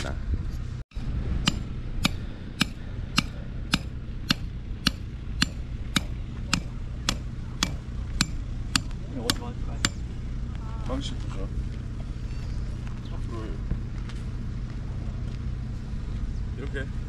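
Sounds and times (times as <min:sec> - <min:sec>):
low rumble: 0:00.0 - 0:17.0
hand tool striking gravelly ground: 0:00.9 - 0:10.1.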